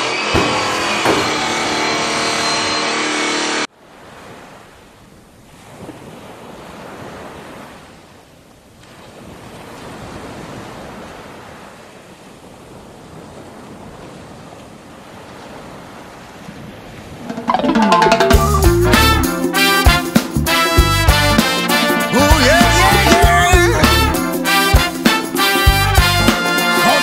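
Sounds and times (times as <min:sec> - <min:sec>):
sea surf washing on beach: 0:03.7 - 0:18.4, 0:21.4 - 0:27.0.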